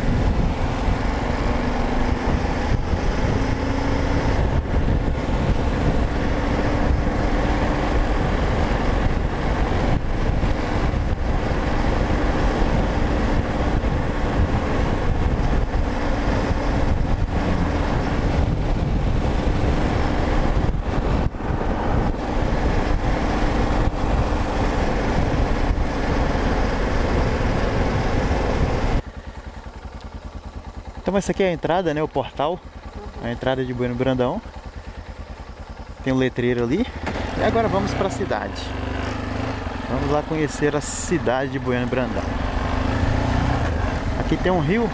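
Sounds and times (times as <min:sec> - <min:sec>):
wind rush on microphone: 0:00.0 - 0:29.1
motorcycle engine running: 0:00.0 - 0:44.9.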